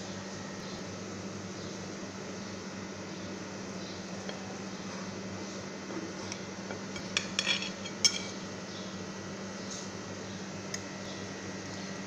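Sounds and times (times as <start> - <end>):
steady low hum: 0.0 - 12.0
knife clinking against plate: 7.0 - 8.4.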